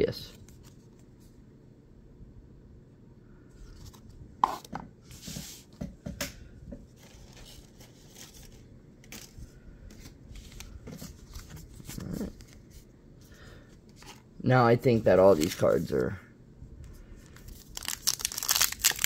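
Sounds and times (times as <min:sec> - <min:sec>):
trading cards rustling: 0:06.9 - 0:12.9, 0:14.9 - 0:16.2, 0:17.2 - 0:19.0.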